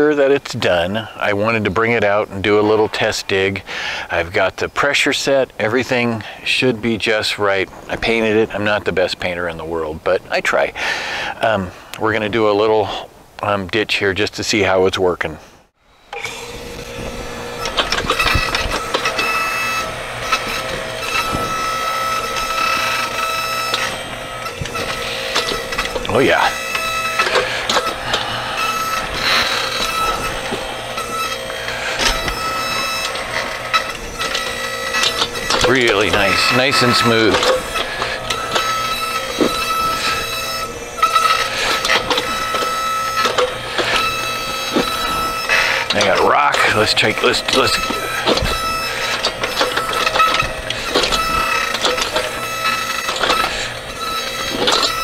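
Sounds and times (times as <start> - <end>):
electric motor whining: 15.8 - 55.0
bucket scraping soil: 16.5 - 55.0.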